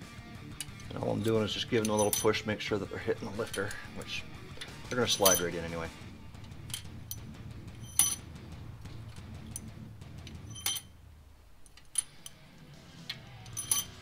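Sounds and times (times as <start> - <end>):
metal pushrods clinking: 0.6 - 2.5, 3.2 - 3.8, 4.6 - 5.7, 6.4 - 8.3, 9.1 - 11.0, 11.6 - 12.4, 13.1 - 14.0.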